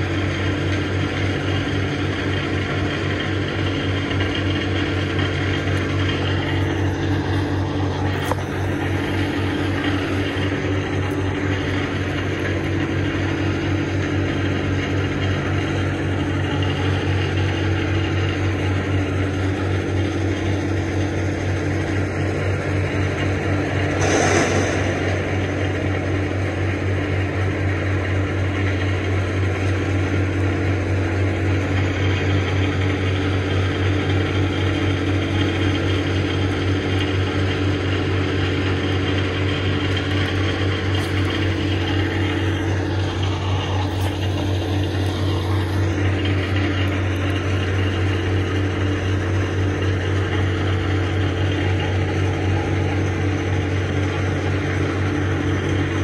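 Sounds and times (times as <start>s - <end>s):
machinery engine drone: 0.0s - 56.0s
rushing sound: 23.5s - 27.0s.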